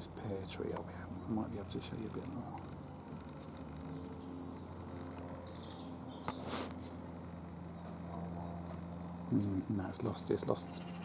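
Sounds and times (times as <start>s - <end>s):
small birds chirping: 0.0s - 11.0s
steady low hum: 0.0s - 11.0s
brief hiss: 6.4s - 6.8s.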